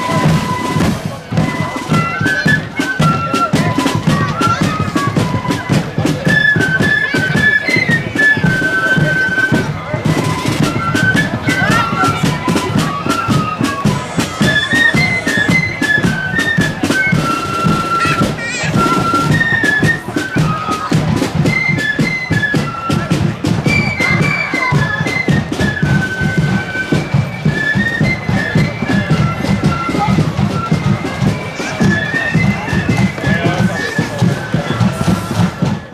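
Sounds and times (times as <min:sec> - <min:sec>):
flutes playing march melody: 0:00.0 - 0:35.9.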